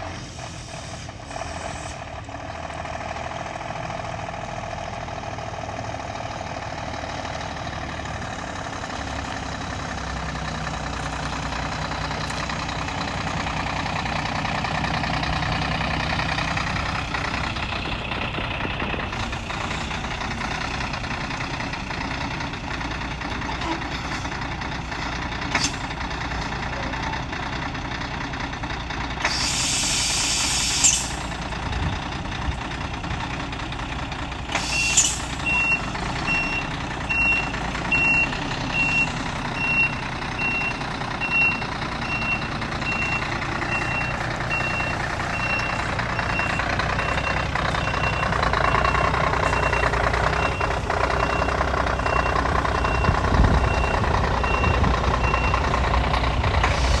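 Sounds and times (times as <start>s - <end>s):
truck diesel engine running: 0.0s - 57.0s
air brake hiss: 0.3s - 2.0s, 29.2s - 31.3s, 34.5s - 35.3s, 56.6s - 57.0s
reversing alarm beeping: 34.7s - 55.8s.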